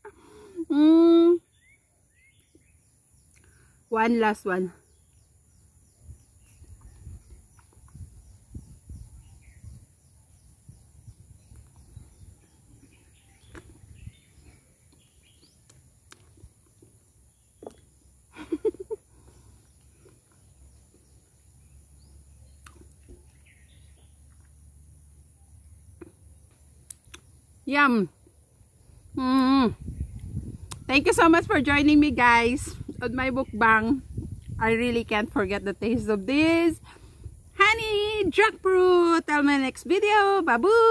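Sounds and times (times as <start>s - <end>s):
faint bird chirps: 0.0s - 16.4s
soft chewing and lip smacks: 6.4s - 8.2s, 11.4s - 18.0s, 19.5s - 21.1s, 22.5s - 24.8s, 26.0s - 27.4s, 30.1s - 30.9s.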